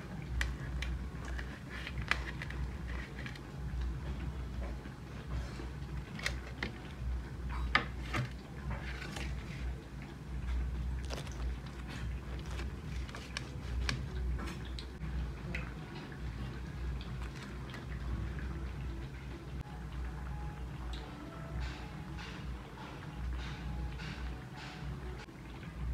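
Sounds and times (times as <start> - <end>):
steady low hum: 0.0 - 25.9
knife crunching through fried bread: 11.0 - 14.2.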